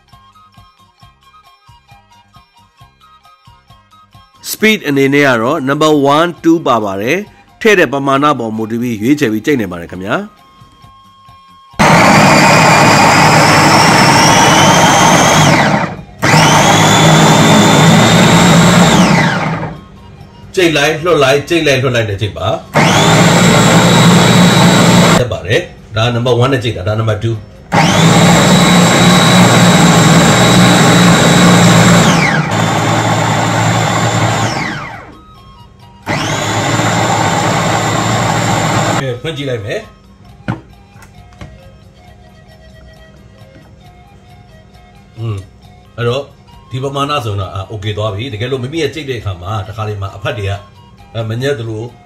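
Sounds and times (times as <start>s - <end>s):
electric food chopper whining: 11.8s - 20.0s, 22.7s - 25.2s, 27.7s - 35.3s, 36.0s - 39.0s.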